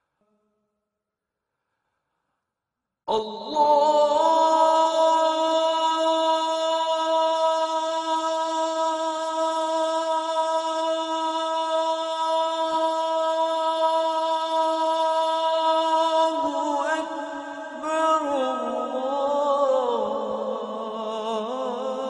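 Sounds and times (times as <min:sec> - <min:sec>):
man chanting call to prayer: 0:03.1 - 0:22.0.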